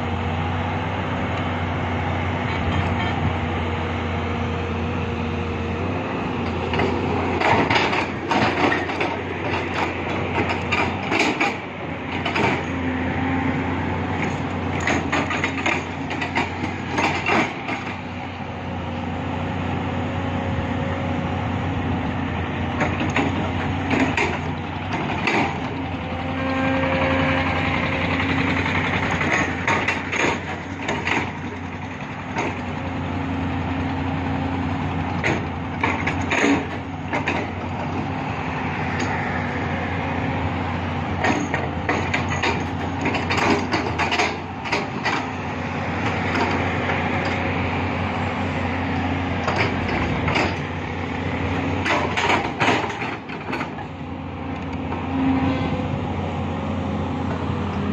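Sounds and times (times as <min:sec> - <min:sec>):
excavator diesel engine droning: 0:00.0 - 0:57.9
knocks and clatters: 0:06.5 - 0:12.8, 0:14.2 - 0:18.1, 0:22.8 - 0:25.8, 0:28.6 - 0:32.7, 0:35.1 - 0:38.1, 0:41.2 - 0:45.4, 0:49.4 - 0:50.8, 0:51.5 - 0:53.9.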